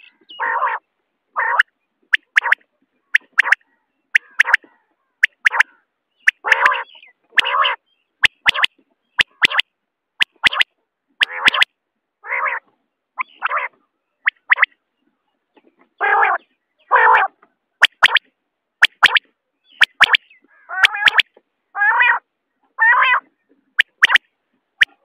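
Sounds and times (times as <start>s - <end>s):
quail calling: 0.0s - 14.8s, 16.0s - 25.0s
sharp double clicks: 2.1s - 2.6s, 3.2s - 3.6s, 4.2s - 5.7s, 6.3s - 6.5s, 8.2s - 9.6s, 10.2s - 11.7s, 17.8s - 19.2s, 19.8s - 20.2s, 20.8s - 21.3s, 23.8s - 24.2s.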